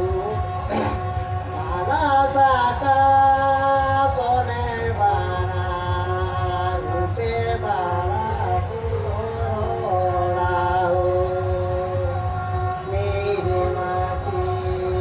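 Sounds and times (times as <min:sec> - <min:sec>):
person singing long held notes: 0:00.0 - 0:15.0
steady low drone: 0:00.0 - 0:15.0.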